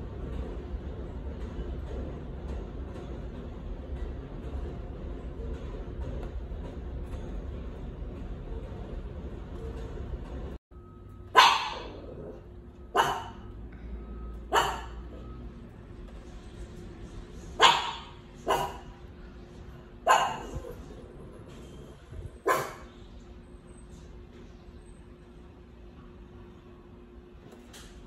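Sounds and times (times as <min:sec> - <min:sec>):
dog barking: 0:11.3 - 0:13.5, 0:14.5 - 0:15.2, 0:17.6 - 0:19.0, 0:20.0 - 0:20.9, 0:22.4 - 0:23.0.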